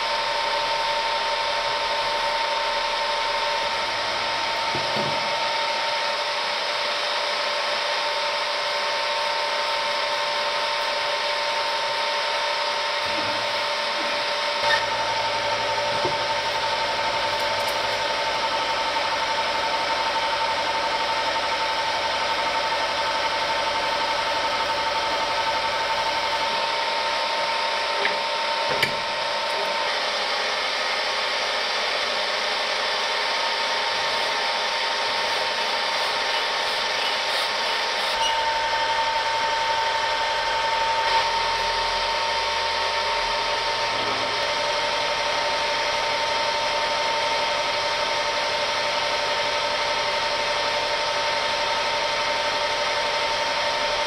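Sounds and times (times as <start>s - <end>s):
hand file rubbing metal: 35.1s - 38.5s.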